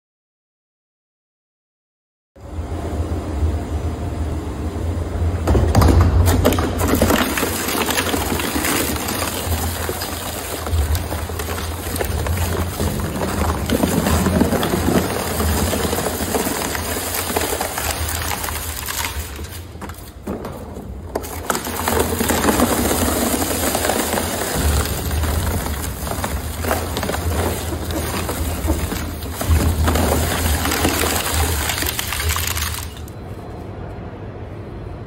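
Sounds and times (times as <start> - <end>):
shredder tearing panels: 5.8 - 20.4, 21.1 - 33.1.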